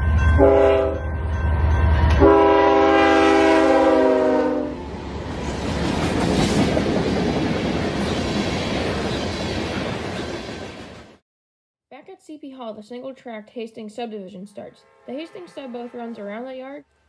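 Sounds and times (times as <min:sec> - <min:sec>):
train air horn blasts: 0:00.4 - 0:01.0, 0:02.0 - 0:04.8, 0:14.6 - 0:16.4.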